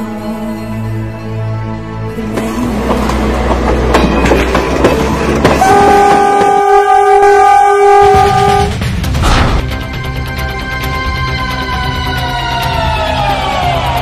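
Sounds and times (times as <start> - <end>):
train rumbling on rails: 2.1 - 14.0
train horn blast: 5.4 - 8.8.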